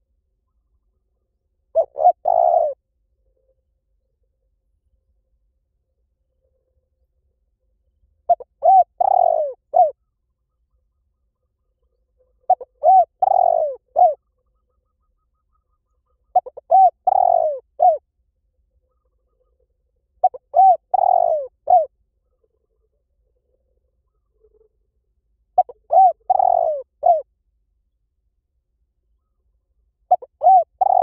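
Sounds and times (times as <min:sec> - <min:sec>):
dove cooing: 0:01.7 - 0:02.8, 0:08.3 - 0:10.0, 0:12.5 - 0:14.3, 0:16.2 - 0:18.0, 0:20.2 - 0:21.9, 0:25.6 - 0:27.3, 0:30.1 - 0:31.0.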